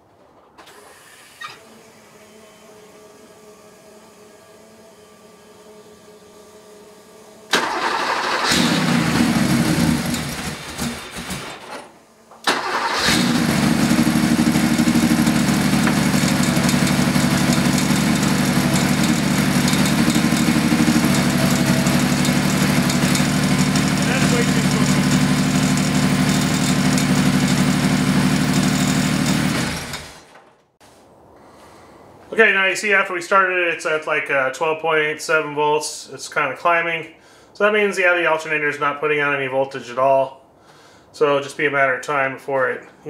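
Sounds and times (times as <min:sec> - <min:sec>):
car engine cranking and starting: 0:00.3 - 0:02.7, 0:04.6 - 0:30.6
car engine idling: 0:03.3 - 0:30.3.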